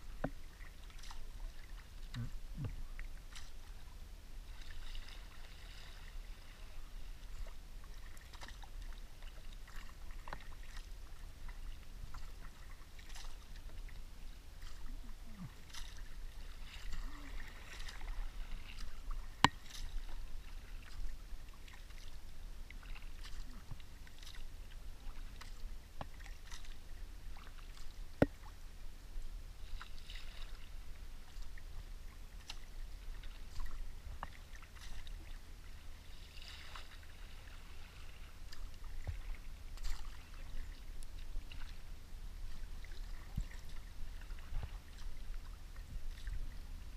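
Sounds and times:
paddle splashing through water: 0.0 - 46.9
water lapping at hull: 0.0 - 46.9.

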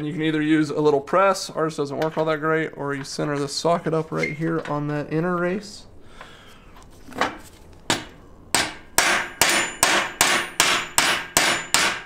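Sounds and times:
hammer striking metal: 7.9 - 12.0.

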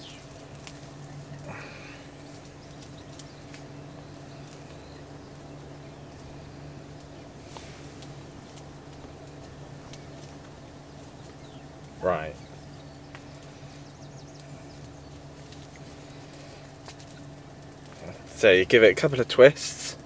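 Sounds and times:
hands rustling mesh bag: 0.0 - 4.8
low hum: 0.0 - 18.5.

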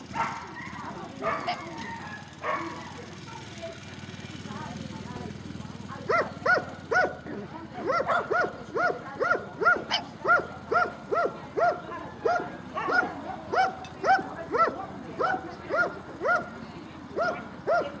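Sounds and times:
dog yelping barks: 0.1 - 3.5, 6.1 - 7.2, 7.8 - 16.6, 17.2 - 18.0.

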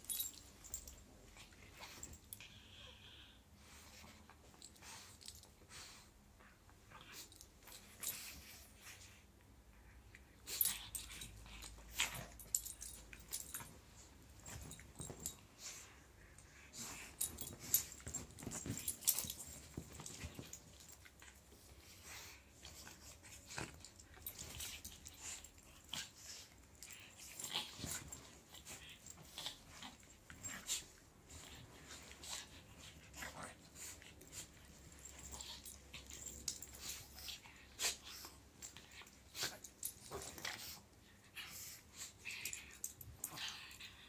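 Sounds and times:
dogs scuffling on blanket: 16.7 - 26.5.

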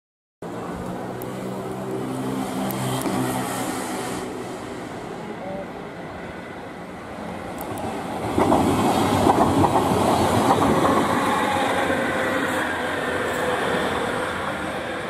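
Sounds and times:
train rolling rumble: 0.7 - 15.0
train wheels clacking: 8.3 - 11.1.

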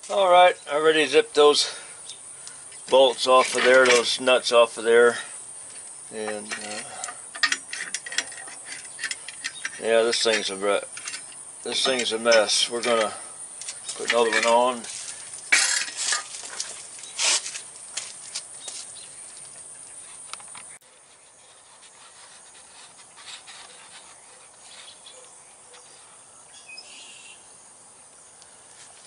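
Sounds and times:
insects chirring: 0.0 - 29.0
metal knocks and clicks: 6.2 - 13.2.

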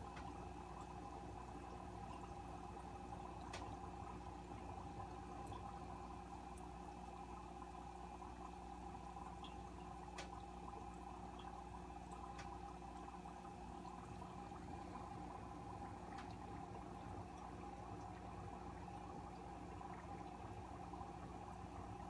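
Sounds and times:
aquarium water humming: 0.0 - 22.0
water trickling: 0.0 - 22.0
faint ticks: 12.2 - 12.6.

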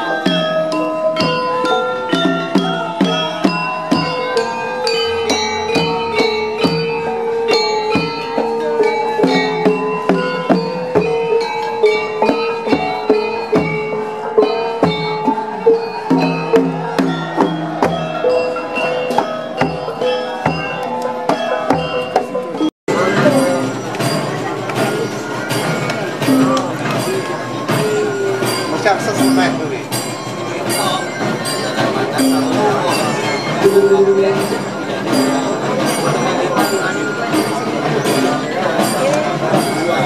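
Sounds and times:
gamelan gongs and metallophones: 0.0 - 40.0
deep drum beats: 14.6 - 18.4, 19.1 - 40.0.

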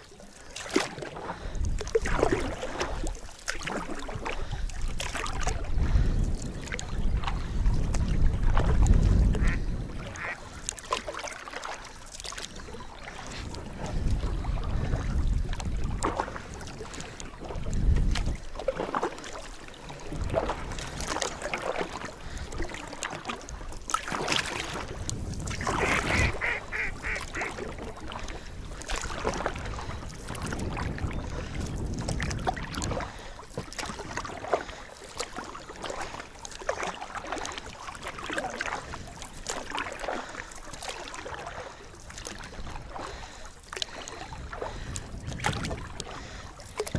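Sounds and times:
water around a boat: 0.0 - 46.9
wind: 0.0 - 46.9
duck quacking: 9.4 - 10.4, 25.8 - 27.5.

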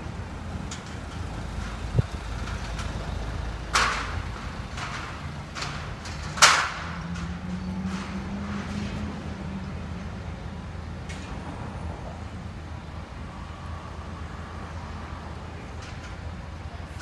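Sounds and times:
street traffic rumble: 0.0 - 17.0
metallic clanks of scaffolding tubes: 0.6 - 9.3, 15.7 - 17.0.

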